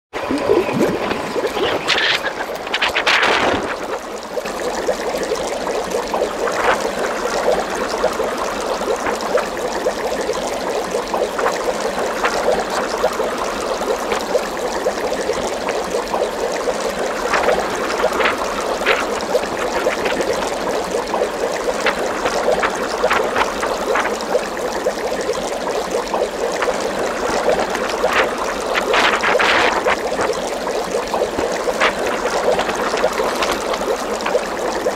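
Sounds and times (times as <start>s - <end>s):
water trickling and bubbling: 0.1s - 34.9s.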